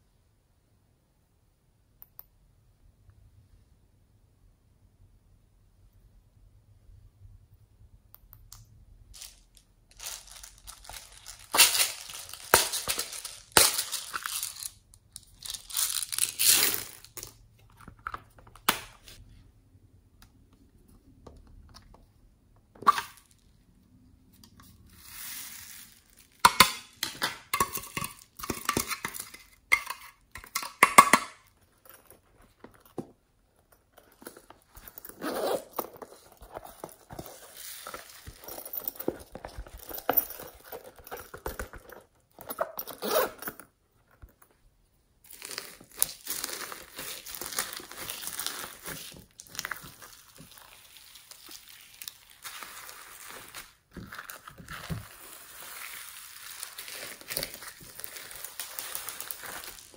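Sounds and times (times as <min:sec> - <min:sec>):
glitter rustling and scattering: 0:09.2 - 0:17.3.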